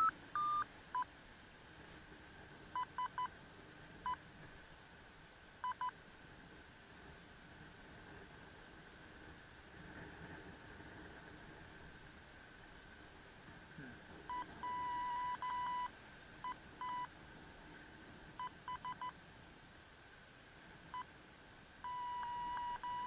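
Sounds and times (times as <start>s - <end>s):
transmitter beeping: 0.0s - 1.1s, 14.3s - 15.9s, 21.8s - 23.0s.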